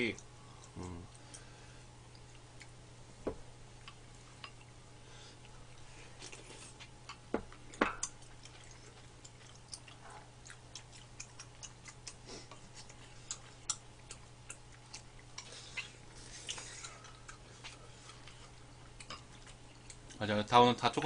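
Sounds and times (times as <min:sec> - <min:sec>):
steady low hum: 0:00.0 - 0:21.0
chewing clicks and lip smacks: 0:03.8 - 0:04.8, 0:06.2 - 0:21.0.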